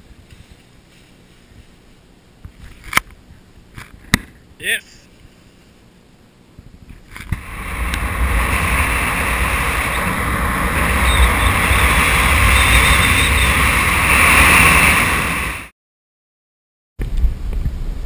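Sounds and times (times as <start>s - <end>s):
low wind buffeting rumble: 6.7s - 15.7s
wind rushing on microphone: 7.1s - 15.7s.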